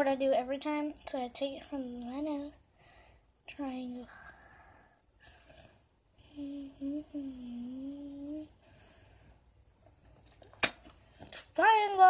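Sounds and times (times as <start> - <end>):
girl humming a tune: 6.2 - 8.6
sharp click: 10.6 - 11.0.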